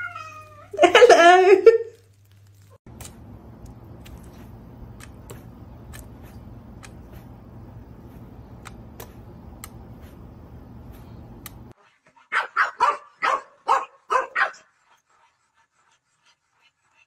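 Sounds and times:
steady low hum: 2.9 - 11.8
dog barking: 12.3 - 14.7.

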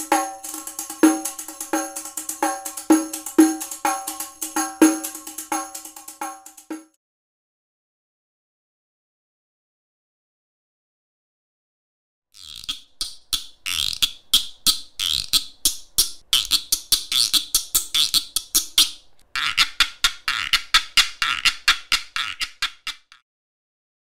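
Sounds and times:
xylophone struck rapidly: 0.0 - 6.9.

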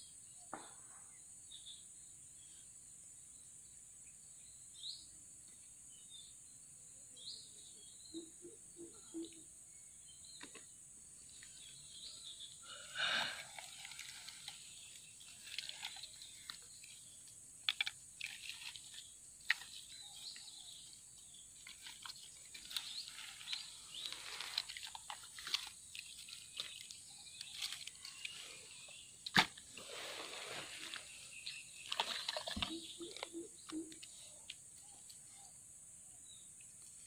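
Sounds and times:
bird chirps: 4.1 - 37.0
high insect buzz: 11.5 - 21.6
hands handling bamboo sticks: 12.9 - 35.2.

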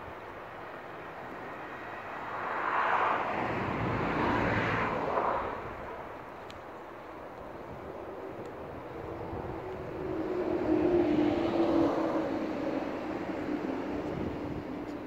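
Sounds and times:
vehicle passing by: 1.6 - 6.1, 8.7 - 14.9.

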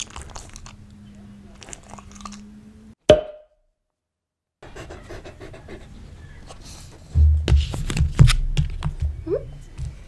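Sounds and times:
sharp pop with ring: 3.1 - 3.5
dog panting: 4.6 - 7.0.

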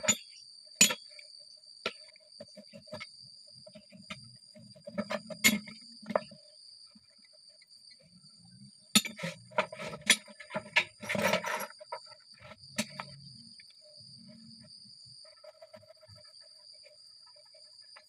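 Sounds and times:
metal tools clinking: 9.0 - 12.0
file rasping scrape: 9.0 - 13.2.

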